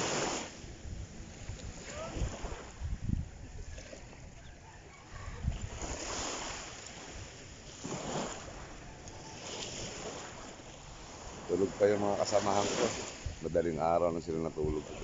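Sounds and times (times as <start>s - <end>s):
small waves washing up beach: 0.0s - 15.0s
wind rumbling on microphone: 0.0s - 15.0s.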